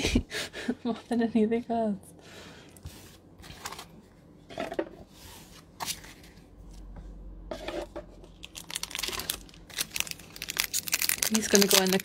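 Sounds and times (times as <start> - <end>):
foil pack crinkling: 8.2 - 12.0.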